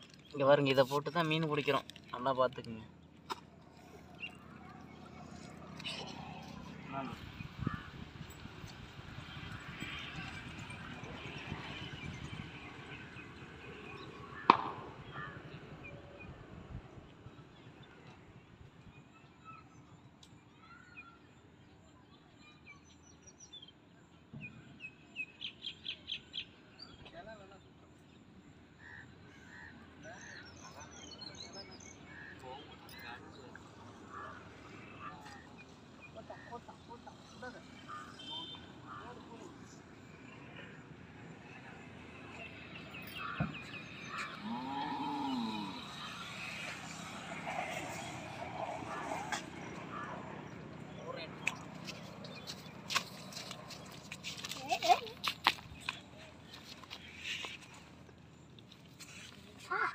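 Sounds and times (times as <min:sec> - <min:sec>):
outdoor background noise: 0:00.0 - 0:59.9
sharp thump: 0:14.5 - 0:15.0
repeated loud bird calls: 0:28.8 - 0:59.9
birds chirping: 0:41.4 - 0:59.9
cow mooing: 0:44.4 - 0:45.8.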